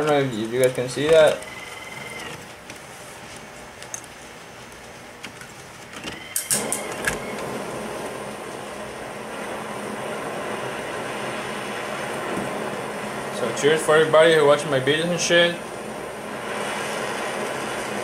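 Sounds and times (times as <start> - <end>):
torch igniter clicks: 6.3 - 7.7
torch flame hiss: 6.4 - 18.0.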